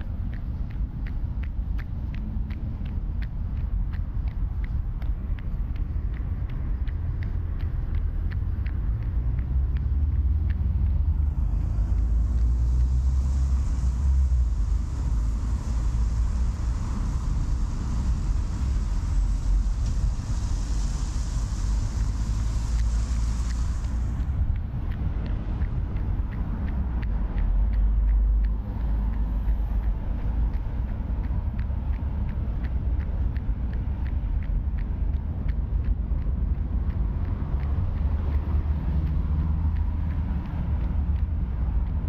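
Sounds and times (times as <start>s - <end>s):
runner's footsteps: 0.0s - 42.0s
traffic rumble: 0.0s - 42.0s
tyre hiss on wet road: 8.9s - 26.0s.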